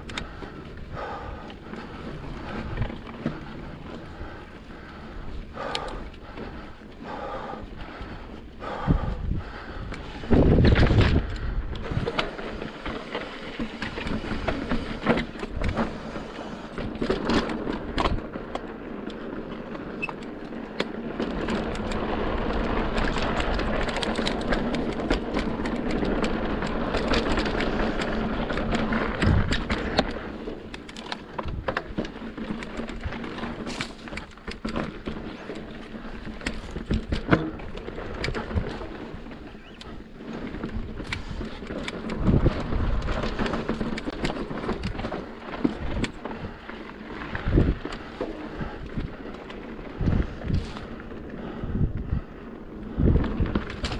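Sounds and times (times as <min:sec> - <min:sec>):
bike tyres rumbling over rock: 0:00.0 - 0:53.9
wind on microphone: 0:08.6 - 0:12.2, 0:49.8 - 0:53.9.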